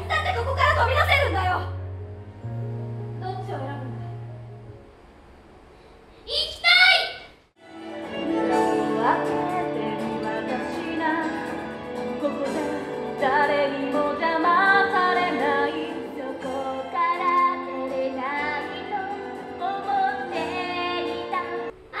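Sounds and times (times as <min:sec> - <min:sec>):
instrumental accompaniment: 0:07.6 - 0:21.7
woman singing with vibrato: 0:08.2 - 0:21.7.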